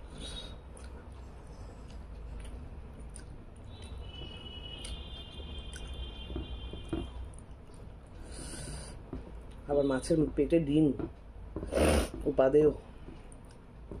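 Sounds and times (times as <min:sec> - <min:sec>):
chewing and wet mouth sounds: 0:00.0 - 0:08.4, 0:09.1 - 0:09.7, 0:13.0 - 0:13.7.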